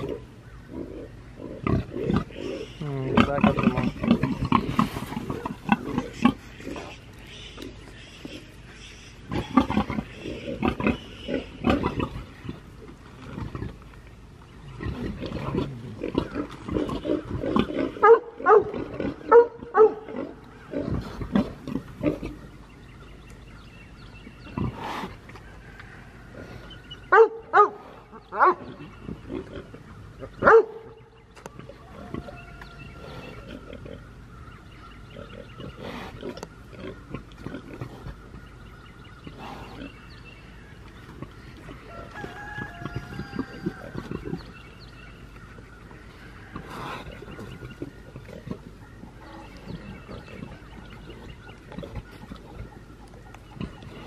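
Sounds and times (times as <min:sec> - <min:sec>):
pigs squealing: 0:00.0 - 0:12.3, 0:14.8 - 0:22.4, 0:41.8 - 0:44.5.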